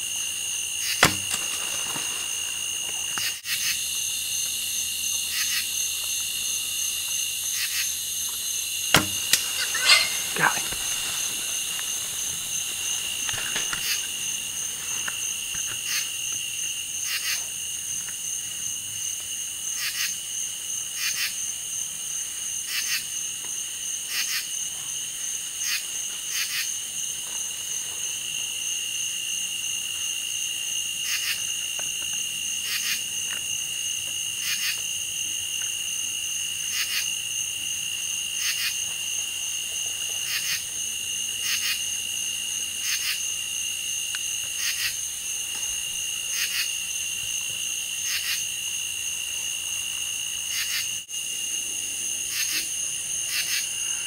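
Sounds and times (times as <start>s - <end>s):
insects trilling and buzzing: 0.0s - 54.0s
short insect chirps: 0.7s - 17.4s.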